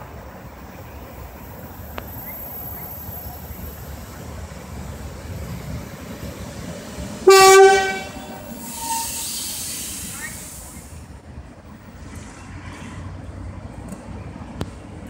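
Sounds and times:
train rolling with low rumble: 0.0s - 15.0s
train horn blast: 7.2s - 9.3s
hiss: 8.4s - 11.0s.

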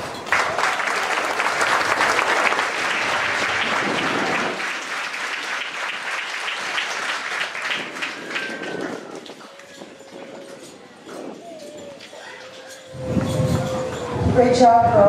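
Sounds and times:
crowd applauding: 0.0s - 11.4s.

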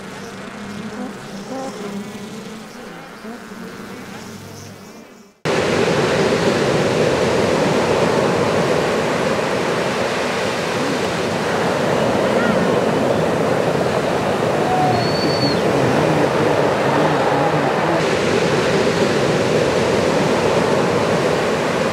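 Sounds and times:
bee buzzing sound effect: 0.0s - 6.7s, 15.5s - 20.0s
ocean surf rushing: 5.5s - 21.9s
wind on microphone: 5.5s - 21.9s.

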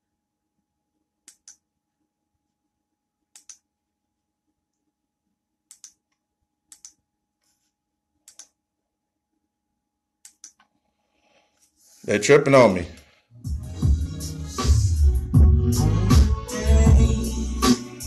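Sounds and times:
sharp clicks: 3.4s - 3.6s, 5.7s - 6.1s, 6.7s - 7.0s, 8.3s - 8.6s, 10.2s - 10.7s.

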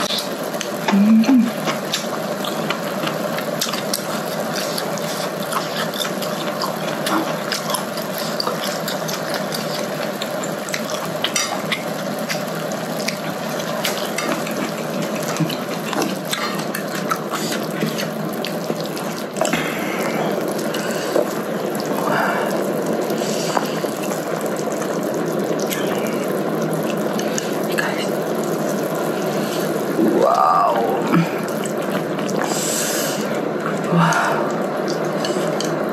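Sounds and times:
chewing: 0.0s - 27.6s, 30.9s - 32.6s, 33.2s - 35.9s
broth bubbling: 0.0s - 35.9s
woman humming: 0.9s - 1.6s, 30.0s - 31.4s.

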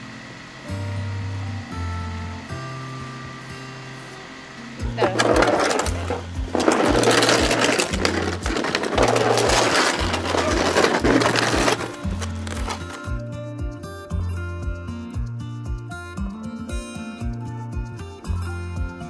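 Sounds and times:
loud rough machine noise: 5.0s - 13.1s.

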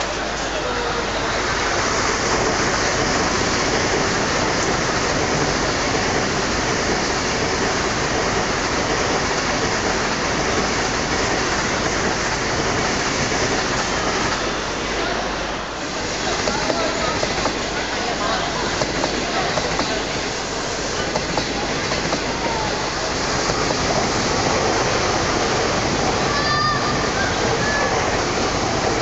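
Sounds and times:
high-speed train passing: 0.0s - 29.0s.

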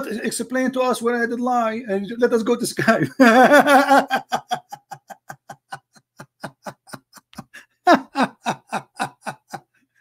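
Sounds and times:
man laughing: 2.8s - 9.7s.

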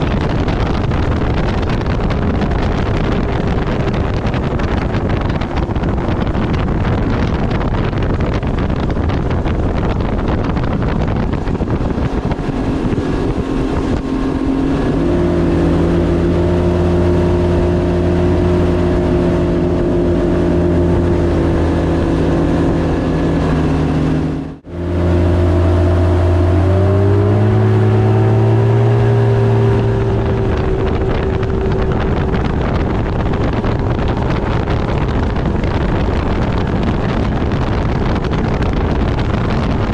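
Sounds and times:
outboard motor running: 0.0s - 39.9s
wind noise on microphone: 0.0s - 39.9s.

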